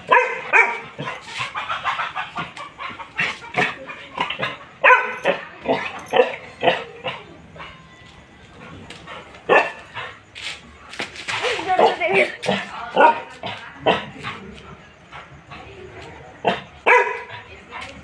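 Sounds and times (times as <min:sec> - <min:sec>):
dog barking: 0:00.0 - 0:02.5, 0:03.5 - 0:07.8, 0:09.5 - 0:09.9, 0:11.8 - 0:14.2, 0:16.4 - 0:17.5.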